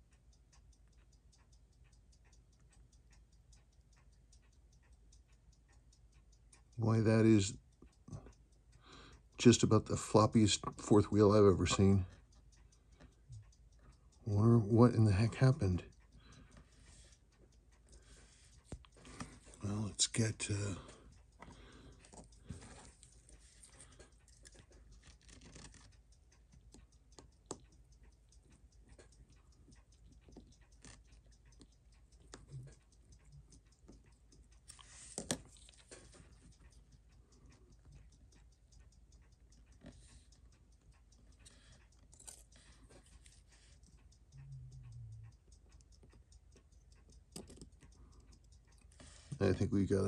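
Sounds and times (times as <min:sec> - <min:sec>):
metal tweezers clicking: 0:44.4 - 0:48.9.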